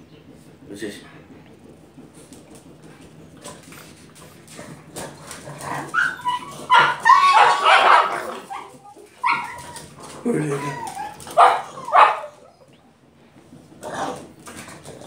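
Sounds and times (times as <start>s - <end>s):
dog barking and yipping: 5.6s - 12.7s.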